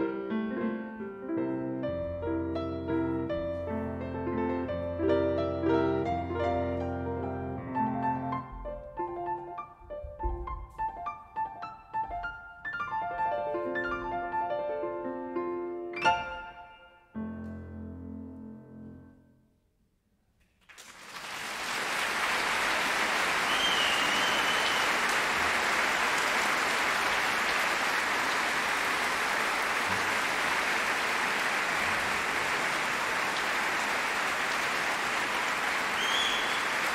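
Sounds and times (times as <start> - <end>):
audience applauding: 20.6 - 36.9
short high whistle: 23.5 - 25.0, 36.0 - 36.8.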